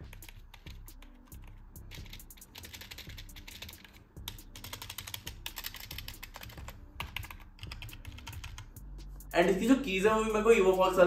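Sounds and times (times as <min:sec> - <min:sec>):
fast typing on keyboard: 0:00.0 - 0:08.7.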